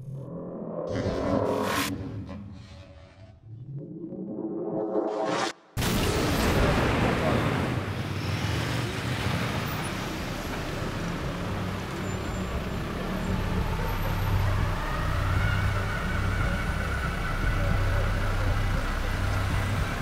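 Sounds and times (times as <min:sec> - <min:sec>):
cars and motorbikes passing: 0:07.4 - 0:20.0
low engine rumble: 0:10.0 - 0:20.0.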